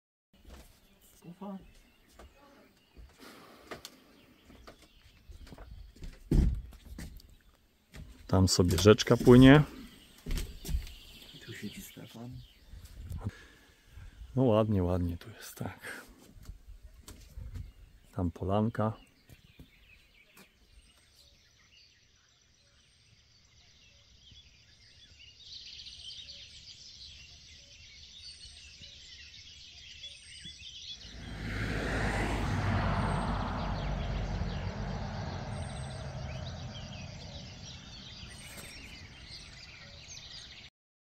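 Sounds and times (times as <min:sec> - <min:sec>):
small birds chirping: 0:00.4 - 0:40.7
vehicle passing by: 0:31.0 - 0:39.4.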